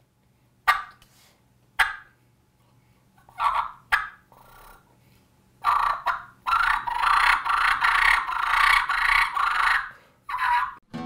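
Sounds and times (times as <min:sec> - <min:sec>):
turkey call raspy notes: 0:03.3 - 0:04.8, 0:05.6 - 0:10.8.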